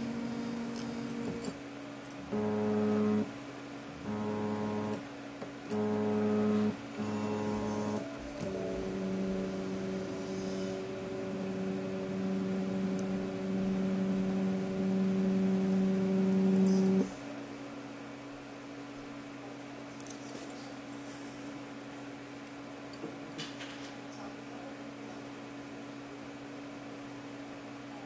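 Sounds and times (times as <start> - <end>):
printer motors whining: 0.0 - 3.3, 3.9 - 17.1
faint steady hum: 0.0 - 28.0.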